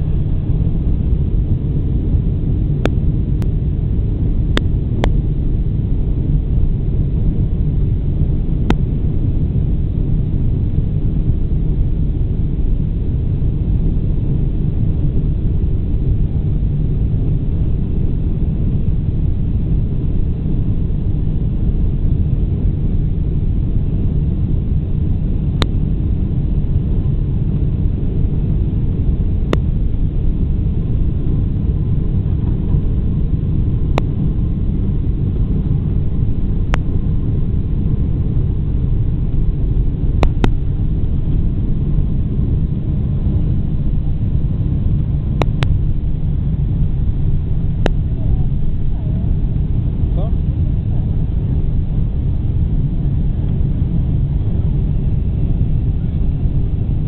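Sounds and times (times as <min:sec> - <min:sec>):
jet engines low rumble: 0:00.0 - 0:57.0.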